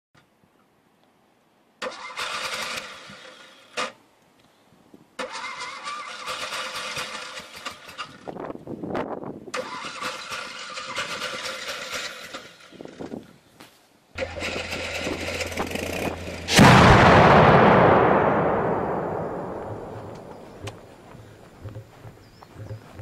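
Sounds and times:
car engine cranking: 14.2 - 16.5
sharp click: 18.5 - 20.8.

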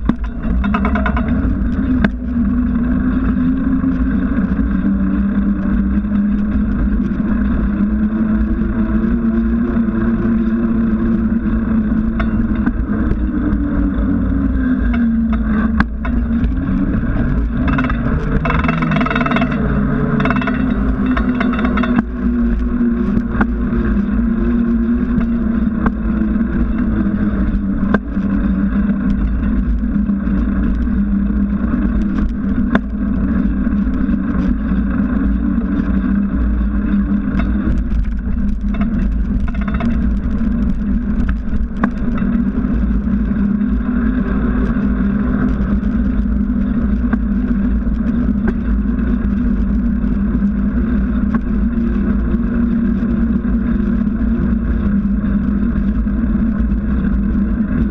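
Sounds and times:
bike tyre humming on asphalt: 0.0 - 57.9
wind rush: 10.9 - 30.6
bike rattling over paving stones: 15.0 - 22.1.

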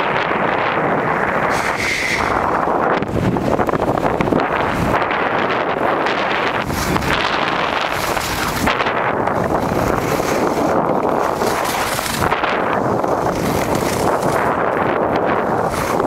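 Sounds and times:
wind rushing over microphone: 0.0 - 16.0
skis scraping on snow: 4.3 - 16.0.

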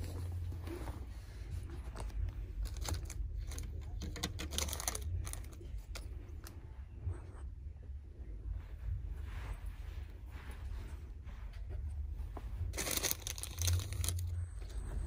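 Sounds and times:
low steady hum: 0.0 - 15.0
small items clicking and rattling: 2.0 - 6.1, 12.7 - 14.4.

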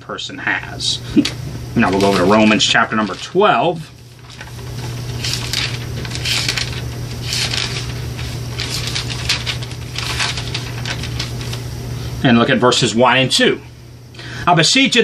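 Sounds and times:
steady low hum: 0.0 - 15.0
pages rustling and flipping: 1.2 - 11.7.

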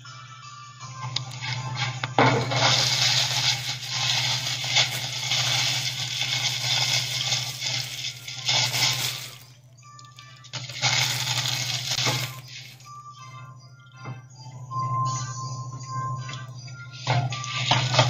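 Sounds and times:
background music: 0.0 - 18.0
plastic wrapping crinkling: 1.1 - 12.9.

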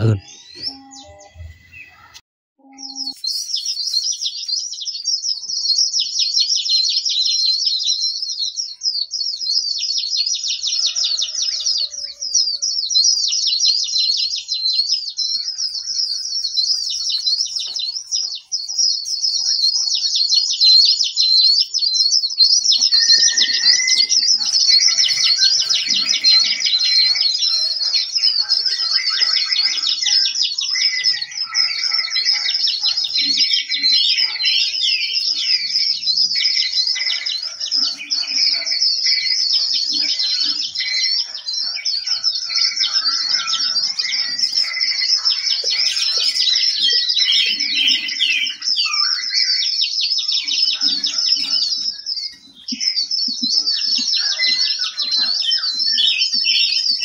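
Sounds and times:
songbirds twittering: 0.0 - 57.0.

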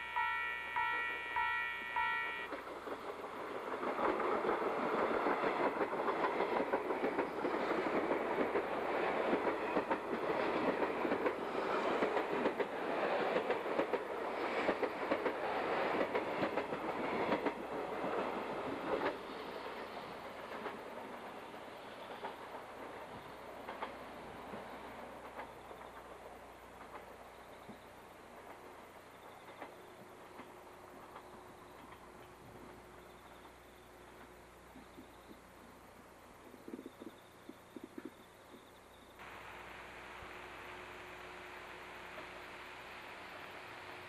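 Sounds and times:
bell ringing: 0.0 - 2.5
train wheels clattering: 0.8 - 35.4.

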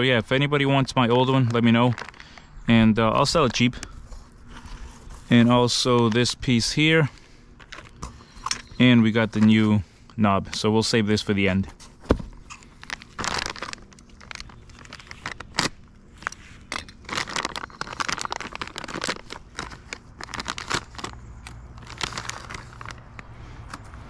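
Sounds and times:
plastic bag crinkling: 0.7 - 6.7, 12.3 - 24.0.

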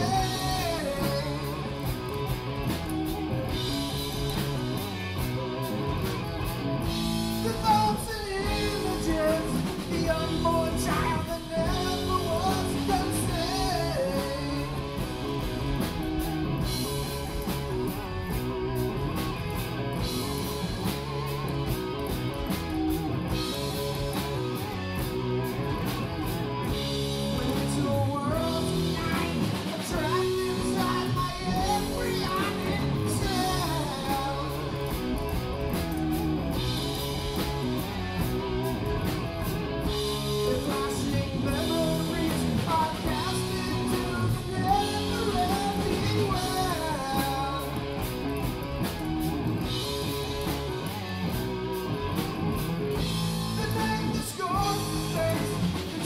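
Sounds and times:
person singing: 0.0 - 1.8, 7.4 - 15.4, 27.2 - 35.0, 40.3 - 48.0, 53.5 - 56.0
live rock band playing: 0.0 - 56.0.

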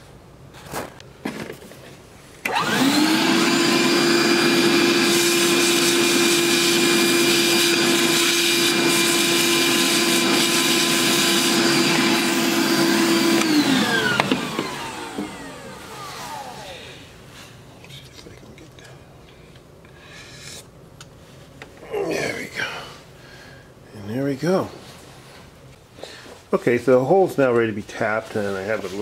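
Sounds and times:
vacuum cleaner whining: 2.4 - 17.4.

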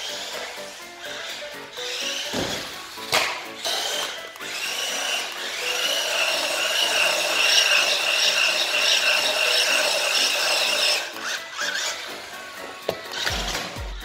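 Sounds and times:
toy truck electric motor whining: 0.0 - 14.0.

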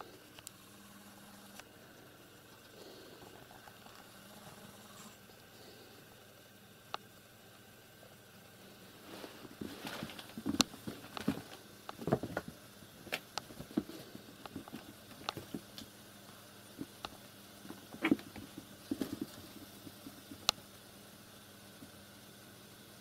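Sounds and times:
kittens' paws thumping and scuffling: 9.2 - 15.9, 17.6 - 20.5.

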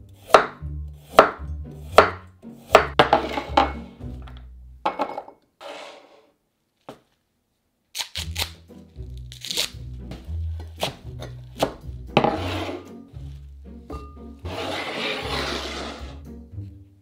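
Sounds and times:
background music: 0.0 - 5.1, 7.9 - 17.0
knife chops on cutting board: 0.2 - 3.4, 10.8 - 12.8
kale leaves tearing: 7.9 - 9.8.

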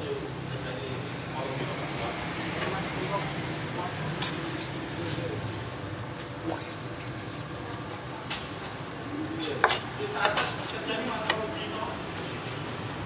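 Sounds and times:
knife tapping cutting board: 9.6 - 11.5.

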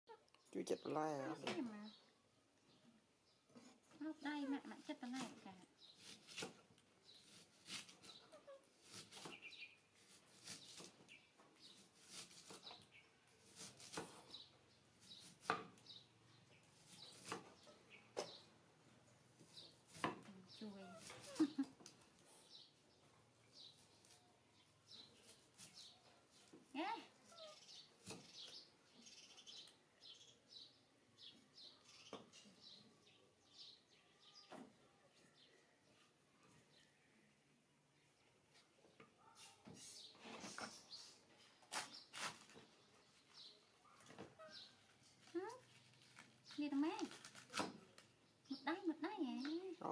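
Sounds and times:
faint bird chirping: 0.1 - 49.9
knife slicing vegetable: 5.2 - 11.1, 11.7 - 14.4, 16.8 - 17.6, 41.7 - 42.6.

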